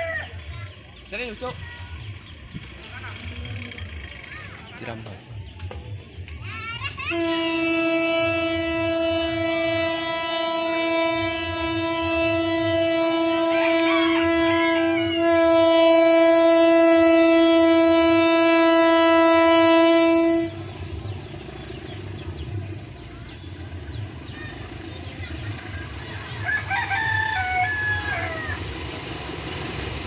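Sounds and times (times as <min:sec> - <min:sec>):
diesel locomotive horn blast: 0:07.1 - 0:30.0.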